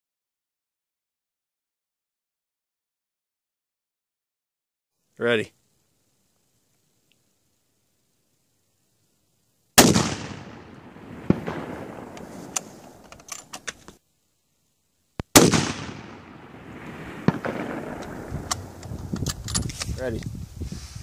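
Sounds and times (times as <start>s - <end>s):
rifle shots with rolling echo: 9.8s - 13.7s, 15.3s - 18.9s.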